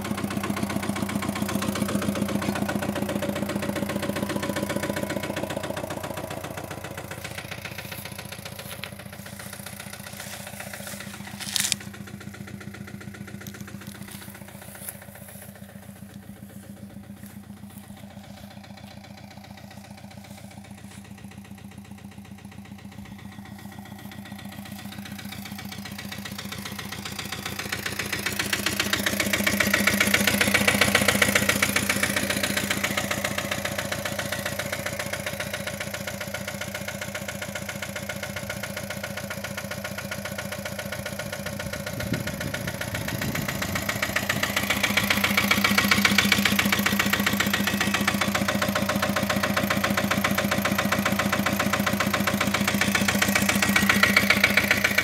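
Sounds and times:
tractor engine idling: 0.0s - 55.0s.

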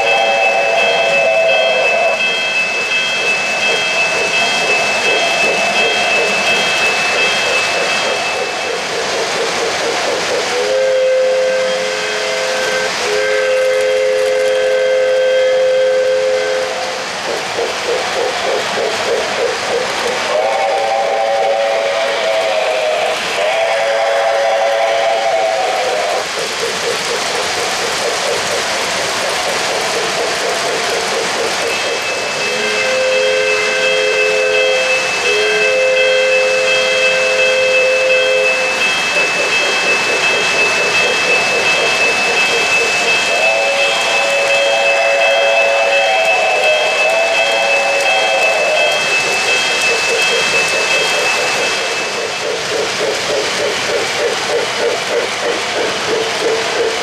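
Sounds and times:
steady hiss of running train: 0.0s - 57.0s
toy train whistle blasts: 10.6s - 17.0s, 20.3s - 26.2s, 31.7s - 38.9s, 43.2s - 51.0s.

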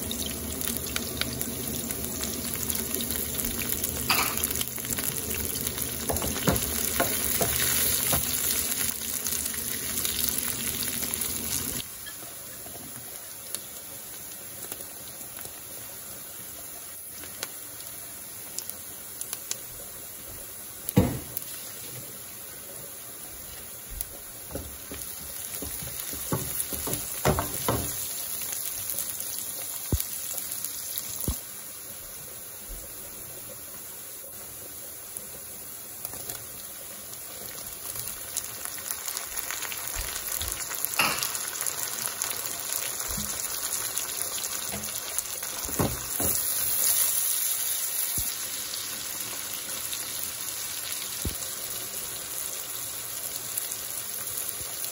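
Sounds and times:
onions sizzling in hot oil: 0.0s - 54.9s
stirring knocks and scrapes: 24.5s - 28.0s.

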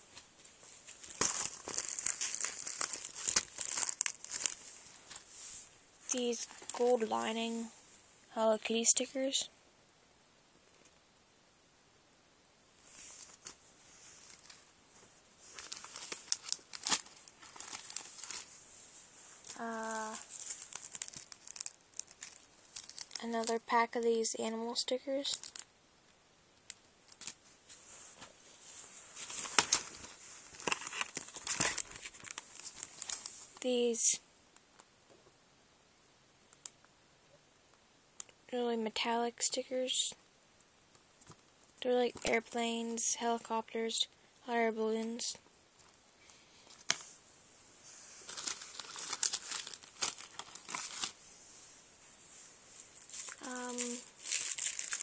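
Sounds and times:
sticker sheets rustling and crinkling: 0.0s - 7.8s, 12.8s - 23.6s, 26.6s - 34.0s, 45.8s - 47.2s, 47.8s - 51.2s, 52.4s - 55.0s.

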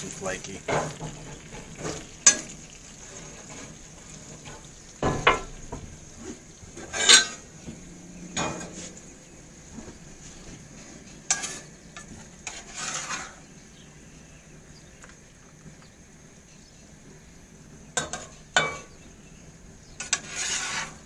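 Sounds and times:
utensil scraping and knocking pan: 0.0s - 9.0s, 9.8s - 13.4s, 20.0s - 21.0s
fish and onions sizzling in pan: 0.0s - 14.1s, 19.8s - 21.0s.

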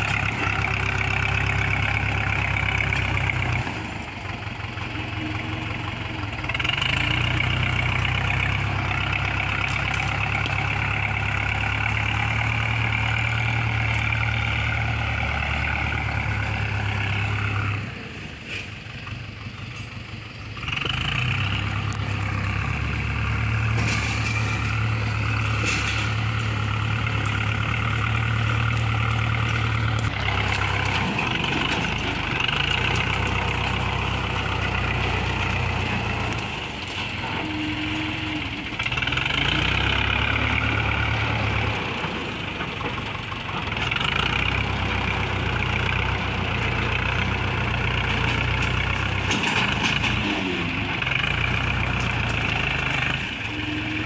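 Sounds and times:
diesel tractor engine under load: 0.0s - 54.0s.

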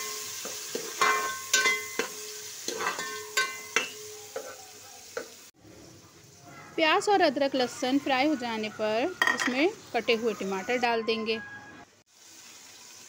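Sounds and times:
onions sizzling in oil: 0.0s - 11.1s, 12.0s - 13.0s
metal spoon knocking pot: 9.2s - 9.6s.

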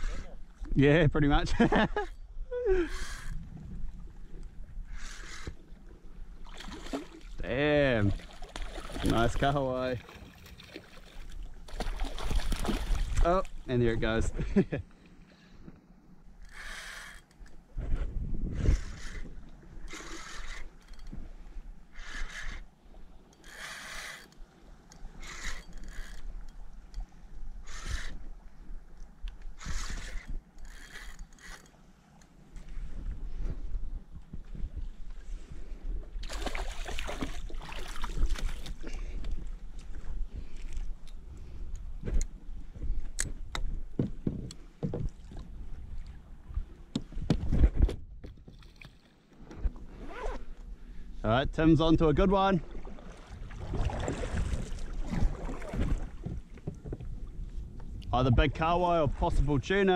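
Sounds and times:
water and wind rumble: 0.0s - 59.9s
kayak paddle splashing in water: 8.1s - 13.3s, 36.2s - 39.0s, 52.6s - 56.7s
knocks and clicks against hull: 42.0s - 45.5s, 46.6s - 49.8s, 54.0s - 58.1s.

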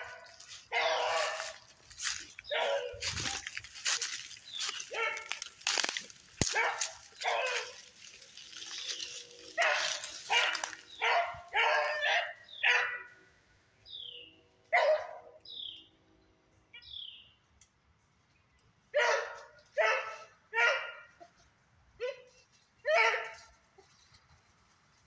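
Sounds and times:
dog barking: 0.0s - 1.6s, 2.5s - 3.4s, 4.9s - 5.4s, 6.4s - 7.8s, 9.6s - 13.2s, 14.7s - 15.4s, 19.0s - 21.2s, 22.0s - 23.5s.

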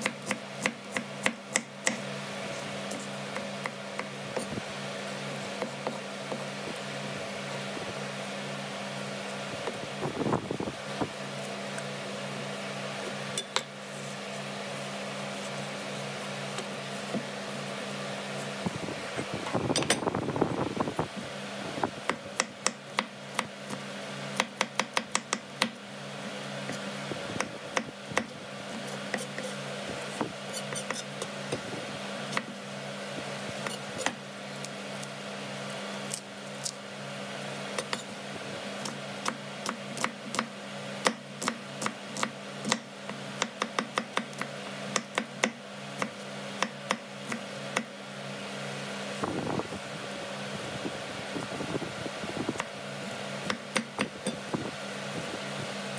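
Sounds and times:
knife chopping onion on board: 0.0s - 2.1s, 22.1s - 25.8s, 26.6s - 29.6s, 30.5s - 31.6s, 38.8s - 47.9s, 52.6s - 54.4s
steady low hum: 0.0s - 55.9s.

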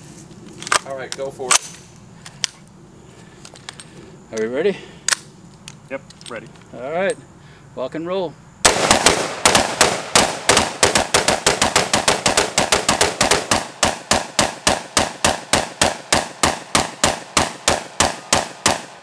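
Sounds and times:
rapid gunfire: 8.6s - 19.0s.

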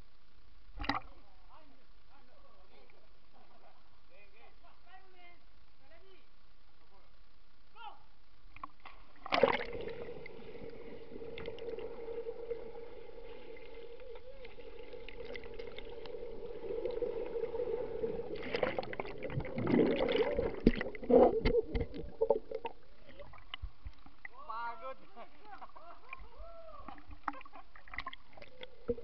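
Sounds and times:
swimmers diving into pool: 8.8s - 29.0s
swimmers churning water: 8.9s - 24.3s
water bubbling: 9.0s - 24.4s, 25.9s - 29.0s
muffled underwater hum: 9.8s - 24.3s.

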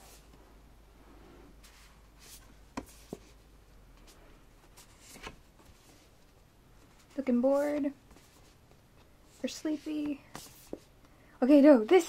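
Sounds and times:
rustling of glossy pages: 1.6s - 11.0s.

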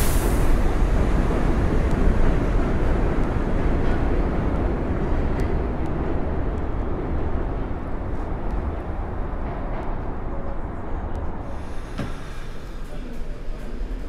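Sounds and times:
subway train rumbling on track: 0.0s - 14.0s.

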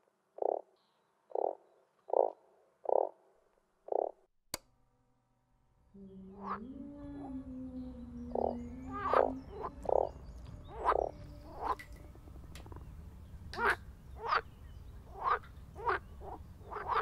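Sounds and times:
frogs croaking: 0.4s - 4.3s, 5.9s - 17.0s
low held tone: 4.8s - 13.6s.

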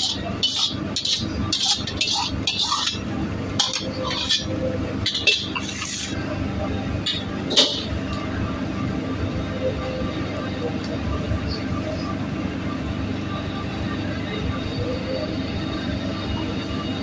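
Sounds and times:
metal ladle clanging against wok: 0.0s - 3.0s, 3.6s - 6.1s, 7.1s - 7.9s
wok burner rushing: 0.0s - 6.4s
kitchen extraction fan: 0.0s - 17.0s.

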